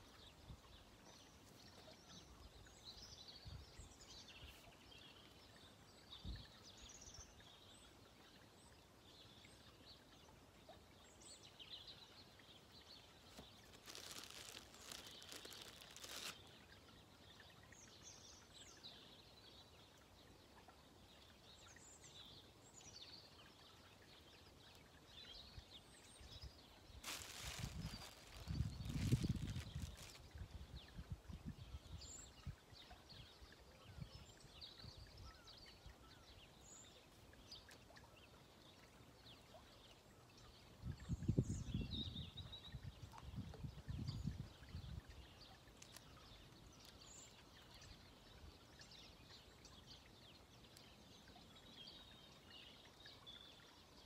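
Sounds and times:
rustle: 11.0s - 19.6s, 21.0s - 40.8s, 41.4s - 54.0s
faint bird chirps: 26.2s - 30.2s.

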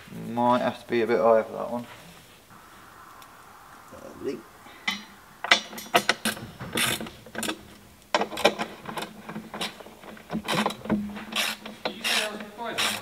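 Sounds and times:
steady low hum: 2.0s - 8.1s.

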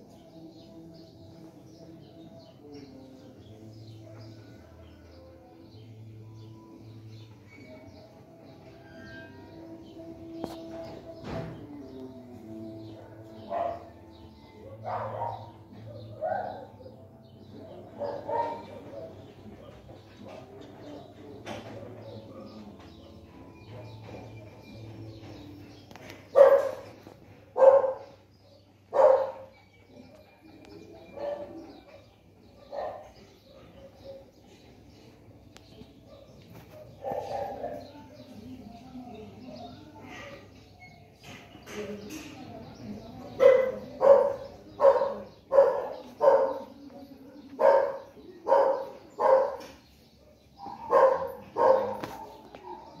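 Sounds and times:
small dog barking: 13.5s - 13.9s, 18.0s - 18.8s, 26.3s - 26.9s, 27.6s - 28.1s, 28.9s - 29.5s, 36.1s - 37.8s, 43.4s - 46.8s, 47.6s - 49.8s, 50.6s - 52.9s.

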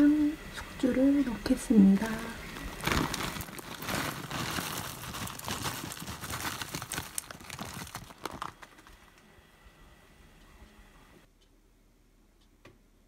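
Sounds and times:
plastic bag crinkling: 2.0s - 9.2s.

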